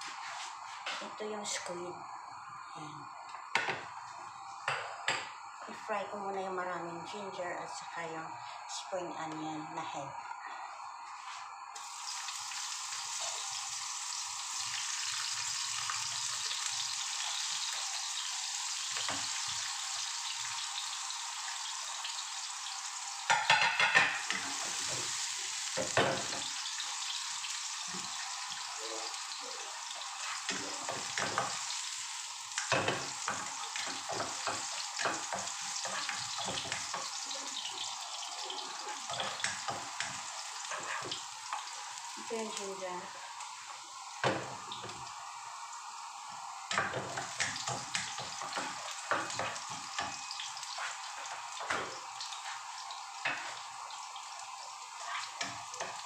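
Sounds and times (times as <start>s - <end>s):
food sizzling in hot oil: 0.0s - 9.7s, 10.8s - 56.0s
spatula scraping a wok: 33.0s - 37.0s, 38.8s - 41.2s, 55.0s - 55.6s.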